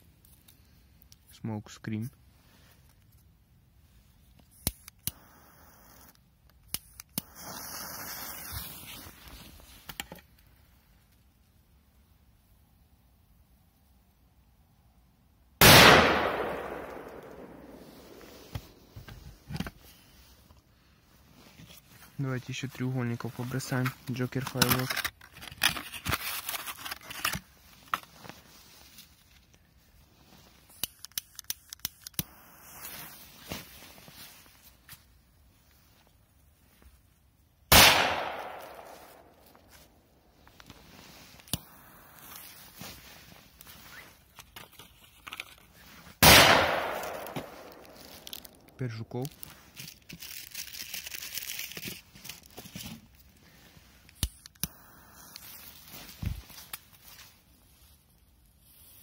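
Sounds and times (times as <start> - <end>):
firecracker hissing: 5.1 - 6.1, 7.2 - 9.3, 32.2 - 33.5, 41.0 - 44.2, 54.7 - 55.9
packaging tearing and crinkling: 24.3 - 28.1, 47.3 - 53.0.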